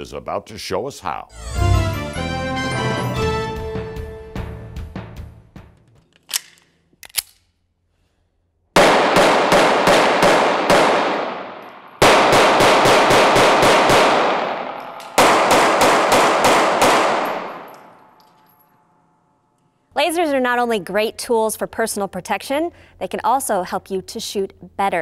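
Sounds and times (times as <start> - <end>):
pistol shots echoing indoors: 8.7 - 18.5.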